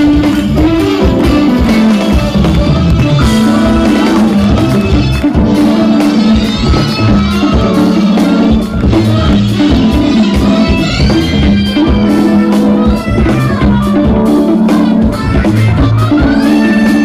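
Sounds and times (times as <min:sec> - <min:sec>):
jazz fusion band playing: 0:00.0 - 0:17.0.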